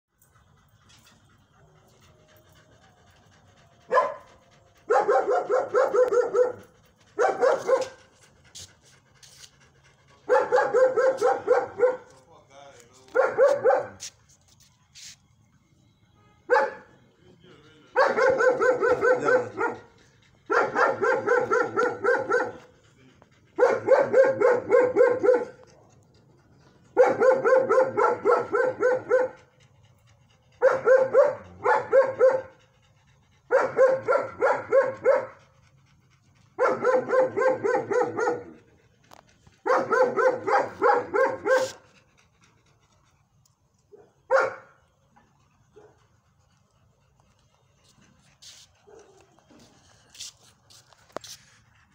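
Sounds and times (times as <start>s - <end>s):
dog yelping: 18.0s - 19.9s, 20.5s - 22.6s, 36.6s - 38.6s, 39.6s - 41.8s.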